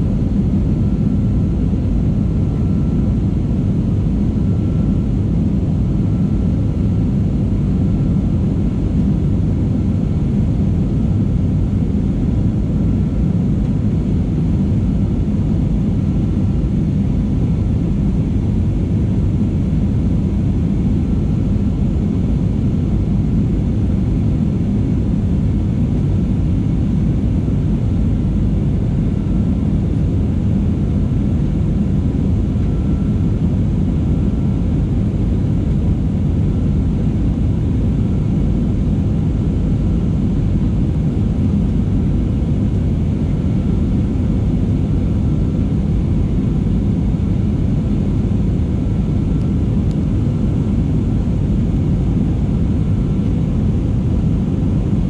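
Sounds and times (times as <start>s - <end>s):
airliner engines rumbling: 0.0s - 55.0s.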